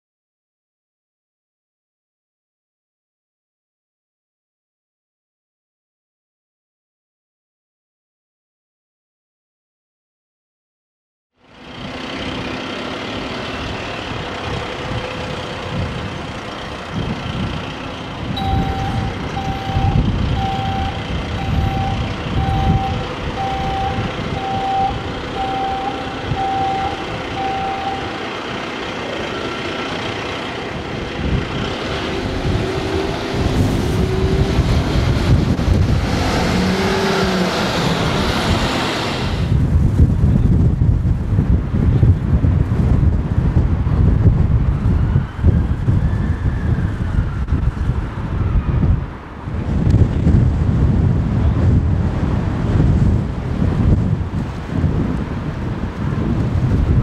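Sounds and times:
diesel engine running: 11.4 - 40.3
reversing alarm beeping: 18.4 - 30.2.

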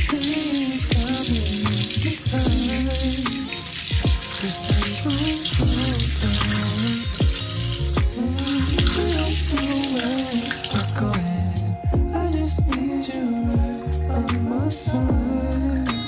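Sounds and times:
background music with a beat: 0.0 - 16.0
faucet water splashing into sink: 0.1 - 10.9.

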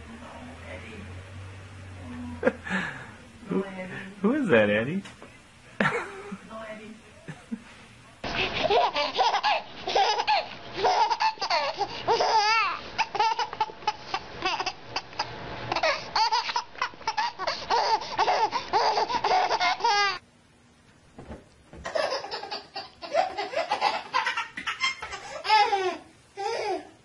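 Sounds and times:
baby laughing and squealing: 8.4 - 20.2, 21.9 - 26.9.

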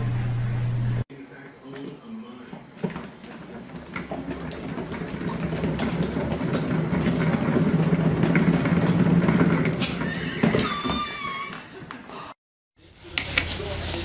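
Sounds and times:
exercise wheel rolling rumble: 2.4 - 12.4.

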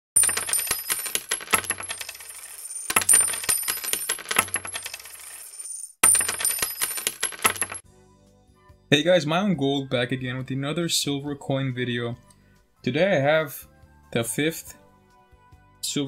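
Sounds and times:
coins dropping and clinking: 0.2 - 7.8.

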